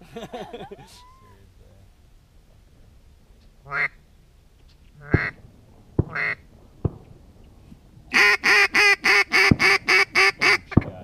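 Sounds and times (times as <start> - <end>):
duck quacking: 3.7 - 4.0, 5.0 - 5.4, 6.1 - 6.4, 8.1 - 10.8.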